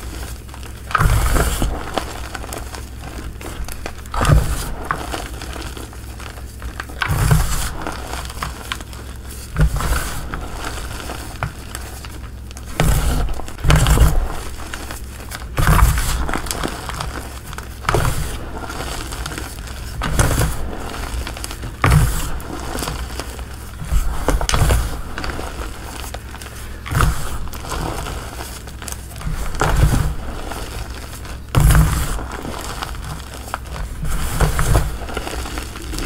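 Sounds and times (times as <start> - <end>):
chalk crumbling crunch: 0.0 - 36.0.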